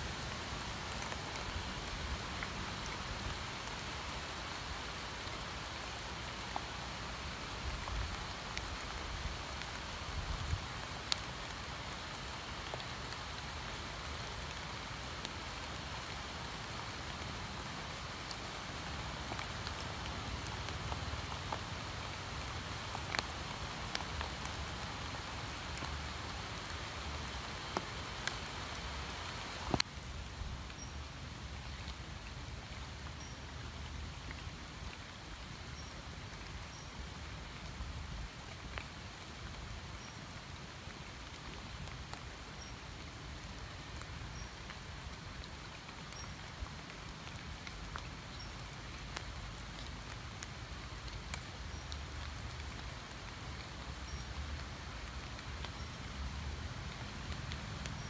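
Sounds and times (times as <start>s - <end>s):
rain on water and leaves: 0.0s - 58.0s
drip ticks: 45.4s - 55.8s.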